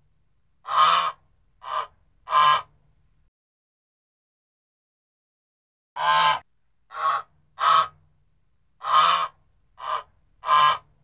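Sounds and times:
goose honking: 8.8s - 10.8s.

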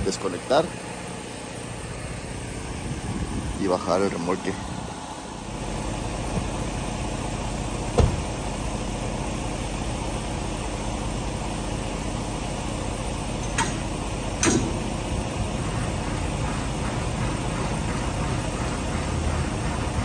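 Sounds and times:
diesel engine idling: 0.0s - 20.0s
low thump: 7.9s - 8.3s
sharp metallic clanks: 13.4s - 14.9s.

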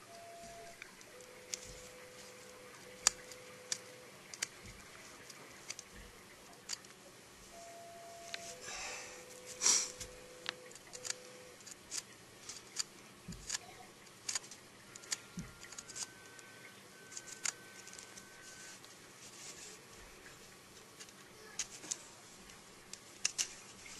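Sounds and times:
scraping rustle: 17.7s - 20.5s.

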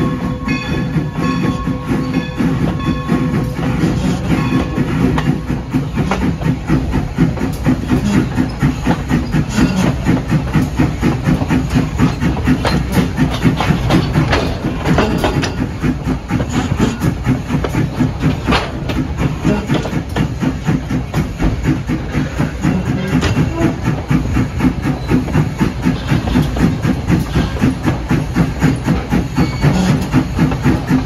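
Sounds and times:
steam train chugging: 0.0s - 31.0s.

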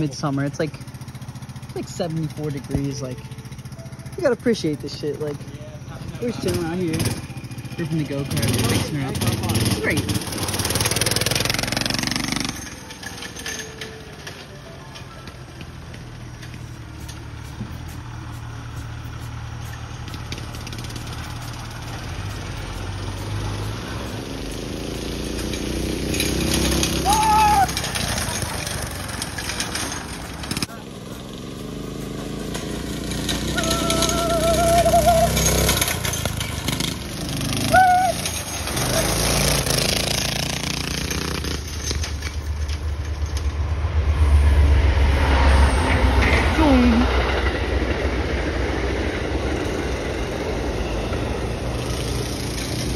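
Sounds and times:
tyres on gravel: 0.0s - 43.9s, 45.9s - 52.9s
go-kart engine running: 0.0s - 44.1s, 44.8s - 52.9s
heavy low rumble: 41.6s - 51.8s.

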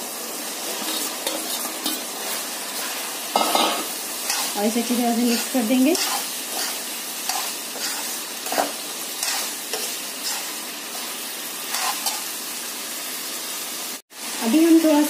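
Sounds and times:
vegetables sizzling in oil: 0.0s - 15.0s
metal ladle scraping pan: 0.7s - 4.6s, 5.2s - 10.6s.

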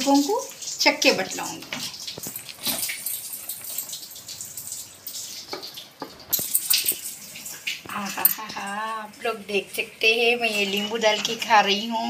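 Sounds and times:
wet clicks and scrapes of food: 1.7s - 8.6s.

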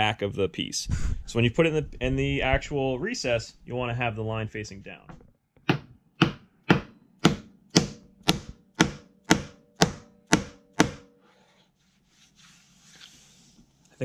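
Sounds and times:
mallet knocking on wood: 5.6s - 11.1s.

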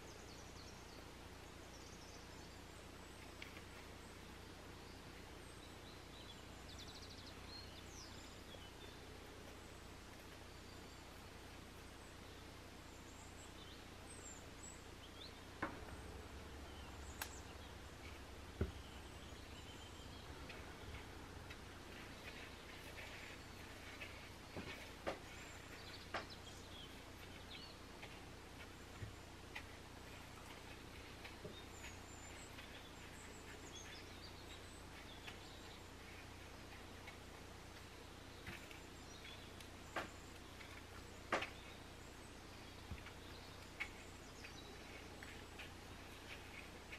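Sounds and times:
faint high bird chirps: 0.0s - 46.9s
low steady hum: 0.0s - 46.9s
dough rolled in bread crumbs: 15.6s - 46.9s
small ticks: 17.1s - 17.4s.

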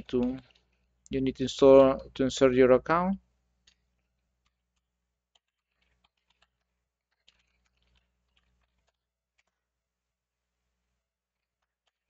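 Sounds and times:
computer keyboard typing: 0.0s - 0.9s, 3.6s - 9.6s, 11.4s - 12.0s.

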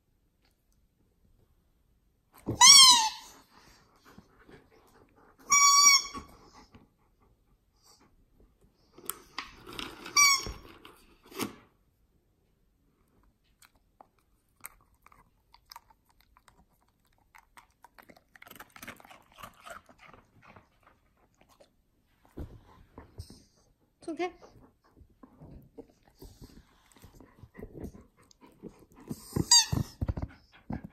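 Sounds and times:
rubber squeaky ball squeaking: 2.5s - 3.3s, 5.5s - 6.3s, 10.2s - 10.6s, 29.2s - 30.2s
dog crunching hard treat: 13.6s - 21.7s.

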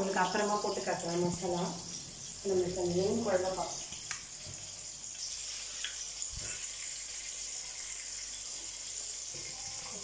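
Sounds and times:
curry bubbling: 0.0s - 10.0s.

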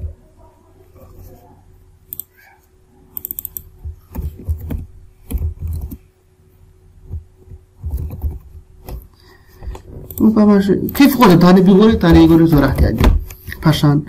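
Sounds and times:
keyboard typing: 3.1s - 6.0s, 7.8s - 13.4s.

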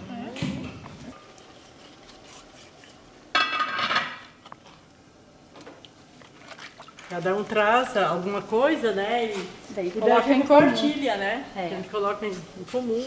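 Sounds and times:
dishes and utensils clattering: 3.3s - 4.3s.

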